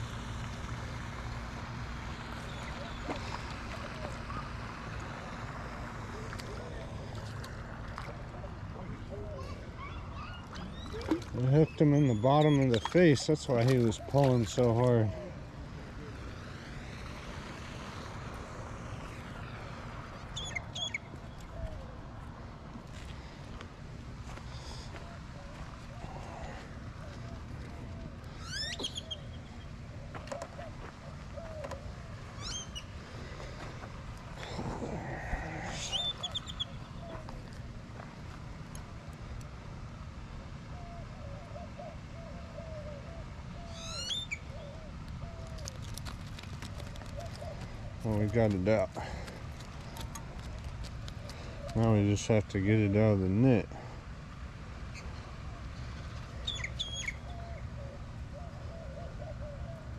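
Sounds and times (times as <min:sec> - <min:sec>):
outdoor rushing noise: 0:14.6 - 0:21.3
bird trill: 0:20.3 - 0:21.1, 0:28.4 - 0:29.5, 0:43.6 - 0:44.8, 0:56.4 - 0:57.5
high-pitched bird chirps: 0:28.4 - 0:29.2.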